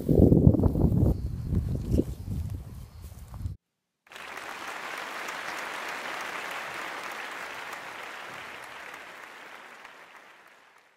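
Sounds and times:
crowd applauding: 4.1 - 10.9.

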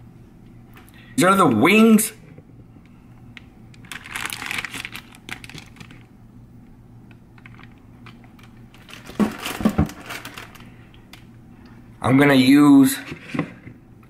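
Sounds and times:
plastic bag crinkling: 3.7 - 6.1, 7.4 - 10.9.

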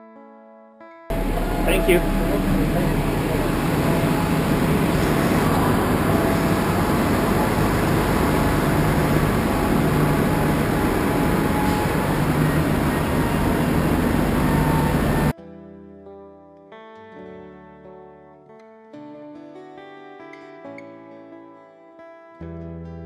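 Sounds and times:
buses idling: 1.1 - 15.3
traffic noise: 1.1 - 15.3.

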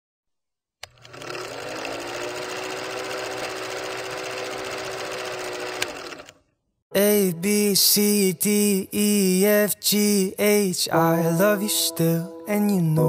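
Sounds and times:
film projector clattering: 0.8 - 6.4.

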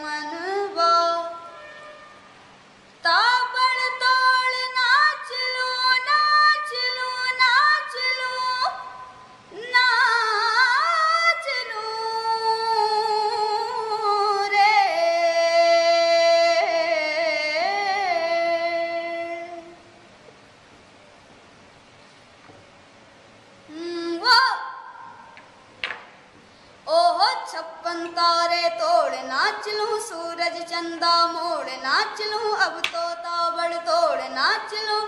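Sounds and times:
boy singing unaccompanied: 0.0 - 1.4, 3.0 - 19.8, 23.7 - 24.9, 26.9 - 35.0.

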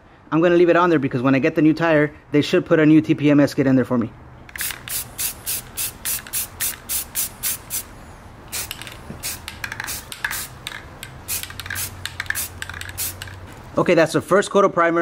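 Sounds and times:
aerosol can spraying bursts: 4.5 - 7.9, 8.5 - 13.5.

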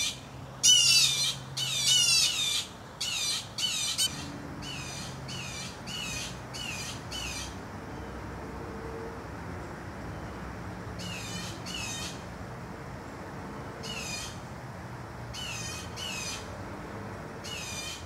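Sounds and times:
blue jays squawking alarm calls: 0.0 - 7.6, 11.0 - 12.2, 13.8 - 14.4, 15.3 - 16.5, 17.4 - 18.0.

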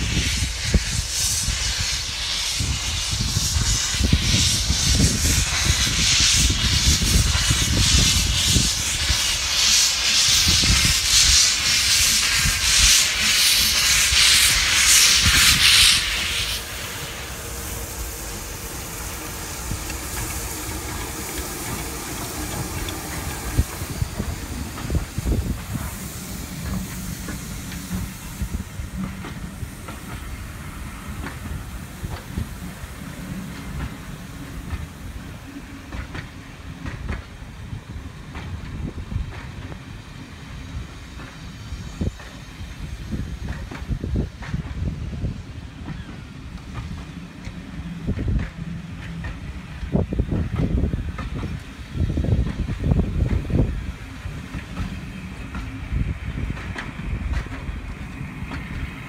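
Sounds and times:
steam hissing: 0.0 - 59.0
locomotive exhaust beats: 2.3 - 39.9.

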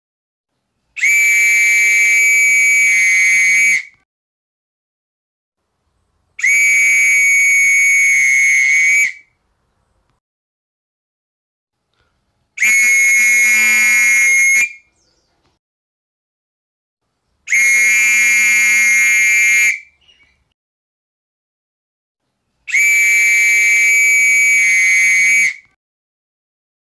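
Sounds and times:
whistle blasts: 1.0 - 4.0, 6.4 - 9.4, 12.6 - 15.0, 17.5 - 20.0, 22.7 - 25.8.

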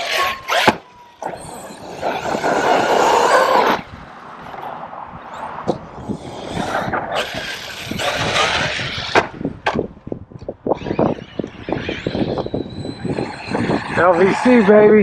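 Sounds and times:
rc truck motor and tyres: 0.0 - 15.0.

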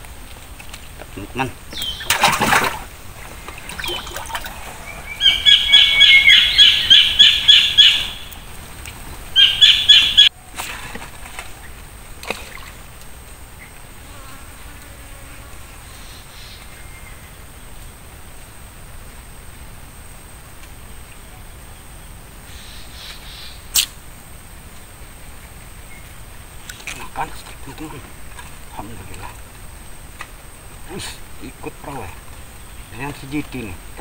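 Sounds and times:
high pulsing animal call: 3.6 - 8.3, 9.4 - 10.3.

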